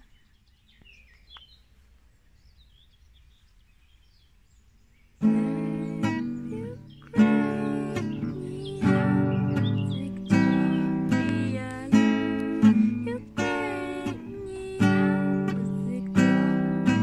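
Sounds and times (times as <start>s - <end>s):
faint bird chirps: 0.0s - 17.0s
acoustic guitar strumming: 5.2s - 17.0s.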